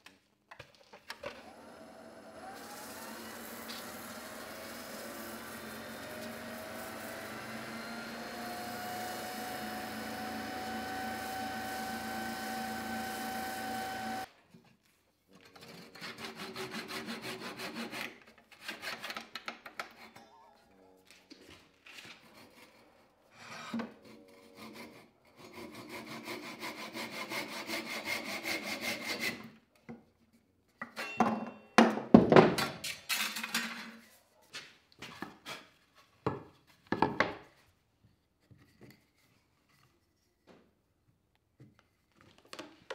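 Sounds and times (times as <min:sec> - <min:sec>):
handsaw cutting wood: 0:01.4 - 0:14.3, 0:15.6 - 0:19.3, 0:22.0 - 0:29.5
wood lathe motor whine: 0:01.4 - 0:14.3.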